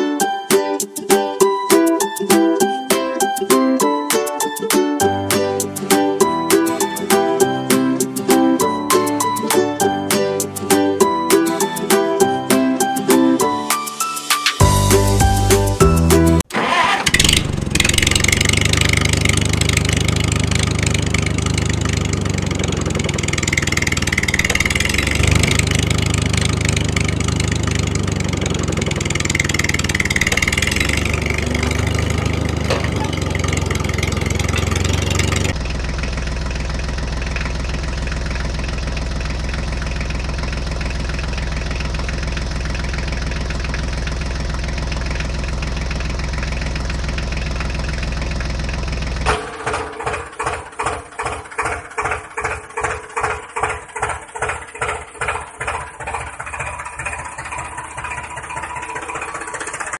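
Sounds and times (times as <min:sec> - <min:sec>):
tractor engine throbbing: 0:14.6 - 0:59.9.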